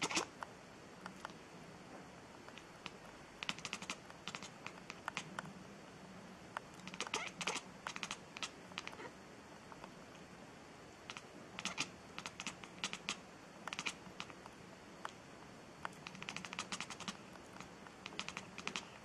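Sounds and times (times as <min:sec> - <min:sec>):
cat chattering clicks: 0:00.0 - 0:00.3, 0:02.5 - 0:05.3, 0:06.8 - 0:09.1, 0:11.1 - 0:14.4, 0:15.9 - 0:19.0.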